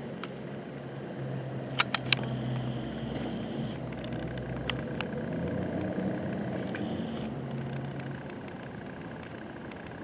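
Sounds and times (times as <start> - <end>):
vehicle engine rumble: 0.0 - 10.0
sharp clicks: 1.7 - 5.1.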